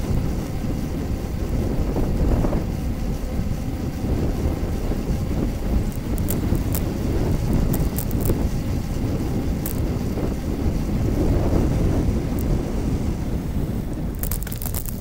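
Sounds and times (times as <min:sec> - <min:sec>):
wind buffeting microphone: 0:00.0 - 0:15.0
light clicks: 0:14.1 - 0:15.0.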